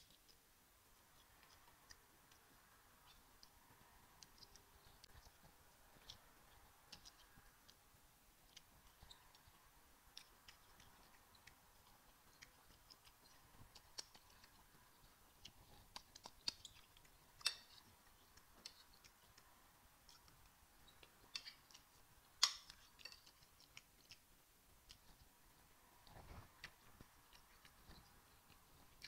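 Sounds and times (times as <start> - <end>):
wet mouth clicks and smacks eating: 8.4 - 25.3.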